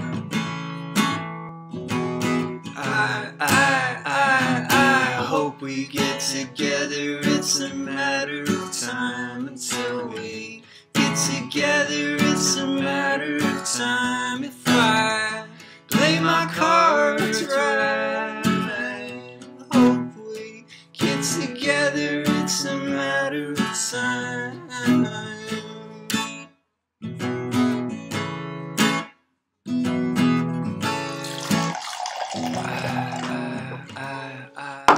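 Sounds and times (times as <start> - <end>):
strummed acoustic guitar: 0.0 - 34.9
person singing: 2.8 - 26.1, 31.1 - 34.9.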